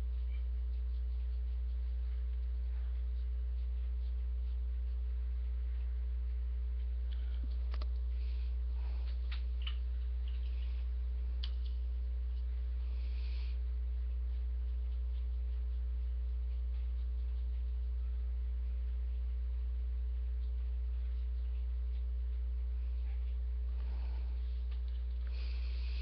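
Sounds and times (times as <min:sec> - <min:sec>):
low electrical mains hum: 0:00.0 - 0:26.0
faint ticks: 0:11.4 - 0:11.9.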